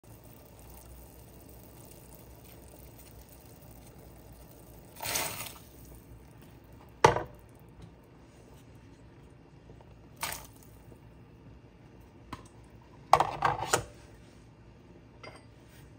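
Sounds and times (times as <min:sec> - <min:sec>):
potatoes splashing into pot: 0:00.0 - 0:08.0, 0:10.0 - 0:10.9.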